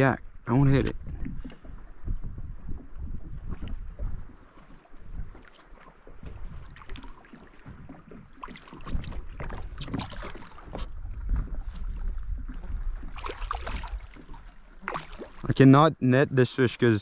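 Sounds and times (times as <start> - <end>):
wind rumble on microphone: 0.0 - 15.6
water splashing and sloshing: 0.0 - 17.0.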